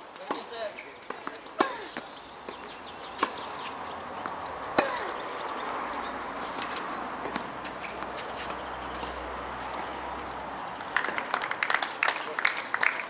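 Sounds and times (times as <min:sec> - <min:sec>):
outdoor background noise: 0:00.0 - 0:13.0
tennis ball knocks: 0:00.3 - 0:09.8.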